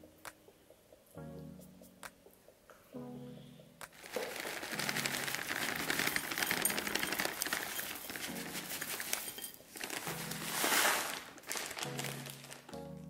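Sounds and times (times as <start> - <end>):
plastic packet crinkling: 3.9 - 13.0.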